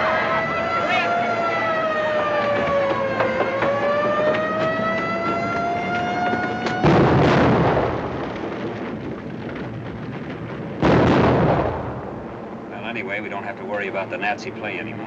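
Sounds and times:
air-raid siren wailing: 0:00.0 - 0:07.2
bomb explosion: 0:06.0 - 0:12.7.

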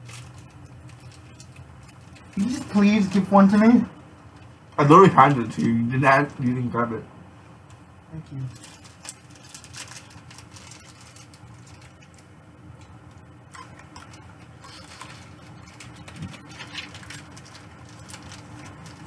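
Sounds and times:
biscuit sticks crunching: 0:00.0 - 0:03.3, 0:08.5 - 0:19.0
foil packet rustling: 0:00.0 - 0:06.5, 0:08.5 - 0:19.0.

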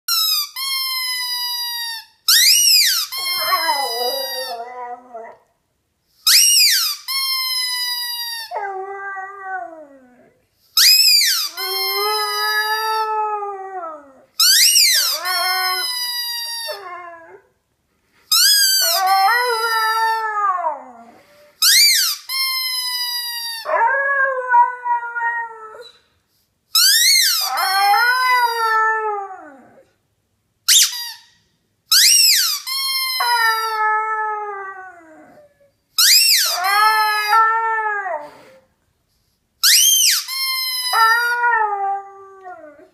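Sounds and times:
squeaky toy squeaking: 0:00.1 - 0:04.9, 0:06.2 - 0:08.6, 0:10.8 - 0:13.0, 0:14.4 - 0:17.0, 0:18.3 - 0:19.7, 0:21.6 - 0:23.7, 0:26.8 - 0:27.7, 0:30.7 - 0:33.8, 0:36.0 - 0:37.3, 0:39.6 - 0:41.4
puppy howling: 0:03.2 - 0:05.4.

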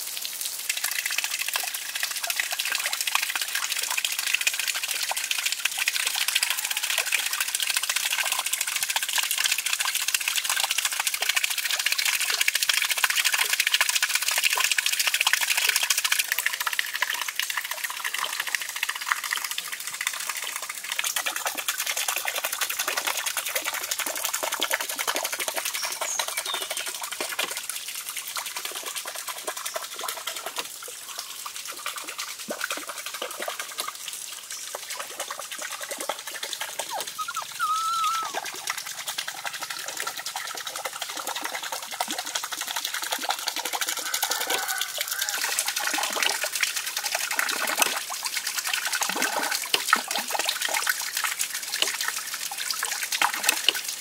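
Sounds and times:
water splashing over water wheel: 0:00.0 - 0:54.0
high chirp: 0:37.2 - 0:38.3.

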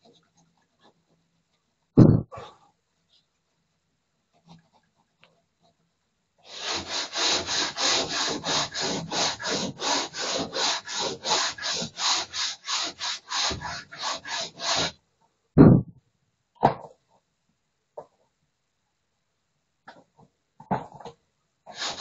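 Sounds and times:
loud thump: 0:02.0 - 0:02.3, 0:15.6 - 0:16.0
hand tool rubbing plaster wall: 0:06.4 - 0:15.0, 0:21.7 - 0:22.0
knock: 0:15.6 - 0:16.0.

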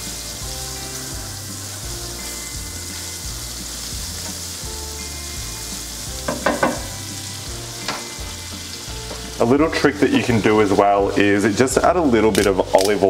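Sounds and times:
butter sizzling in frying pan: 0:00.0 - 0:13.0
spatula knocking against pan: 0:06.2 - 0:07.0.

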